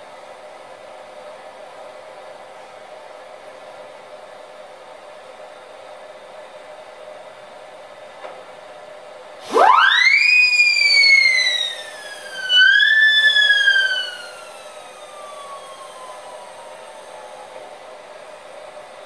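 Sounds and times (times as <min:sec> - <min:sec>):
siren-like whistling tone: 0:09.4 - 0:19.0.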